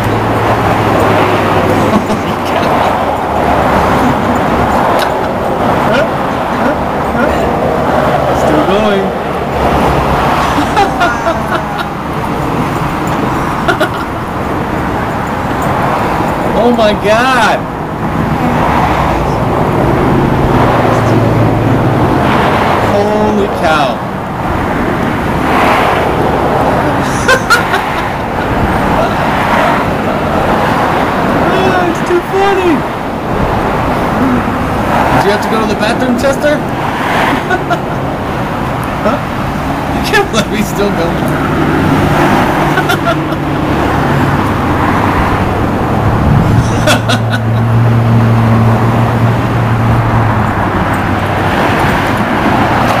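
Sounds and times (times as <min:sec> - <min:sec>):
loud outdoor rumble: 0:00.0 - 0:53.0
road traffic noise: 0:00.0 - 0:53.0
vehicle engine humming: 0:00.0 - 0:53.0.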